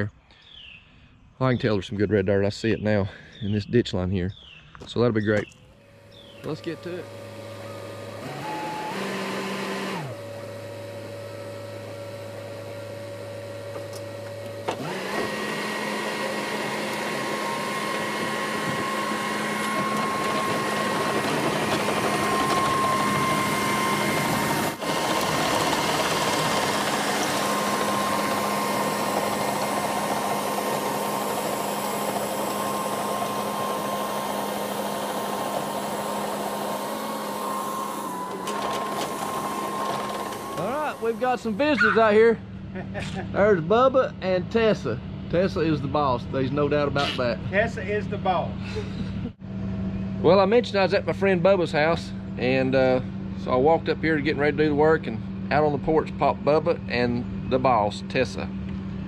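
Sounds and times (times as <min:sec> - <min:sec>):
diesel engine idling and revving: 0:06.0 - 0:59.0
thin steady whine: 0:16.5 - 0:42.3.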